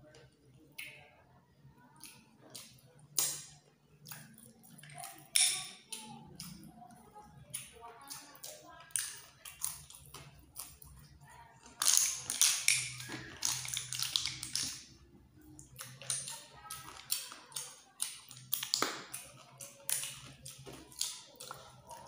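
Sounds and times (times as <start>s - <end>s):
wet mouth eating sounds: 1.9s - 22.0s.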